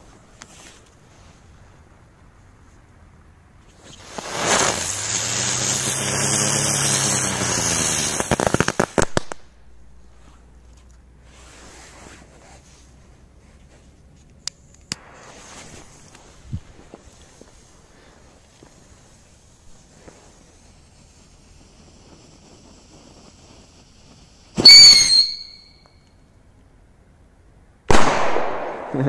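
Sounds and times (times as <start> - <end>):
firework hissing sparks: 3.6 - 13.0, 14.7 - 26.0
sharp firework crackles: 3.6 - 14.0, 14.6 - 26.1, 27.9 - 29.0.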